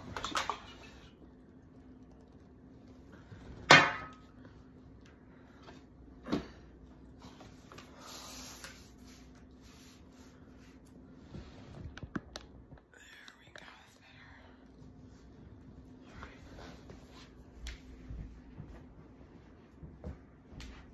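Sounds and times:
steady low hum: 0.0 - 20.9.

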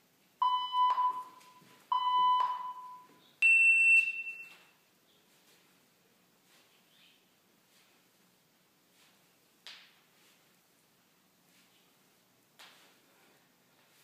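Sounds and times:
countdown beeps: 0.4 - 4.6.

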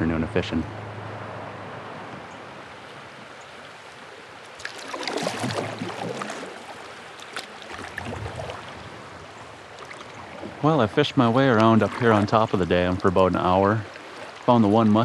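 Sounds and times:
river water splashing around kayak: 1.2 - 15.0.

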